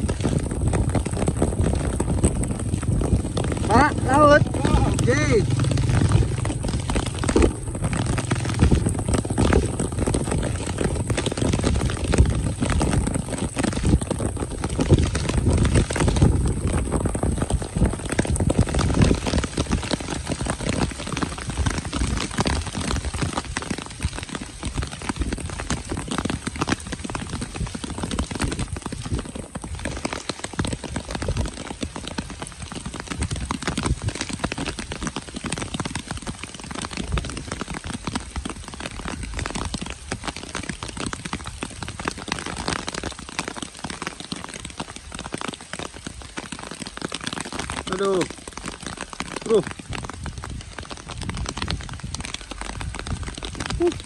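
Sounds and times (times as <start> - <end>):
deep rumble: 0.0 - 21.8
heavy rain falling: 0.0 - 54.0
diesel engine rumbling: 3.7 - 10.2.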